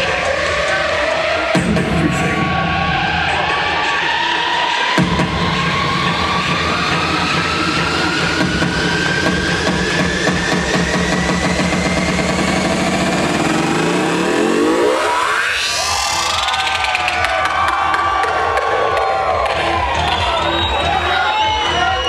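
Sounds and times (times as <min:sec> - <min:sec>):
buzzing pulsing bass: 0:05.0 - 0:22.0
rising synth tone: 0:05.4 - 0:20.0.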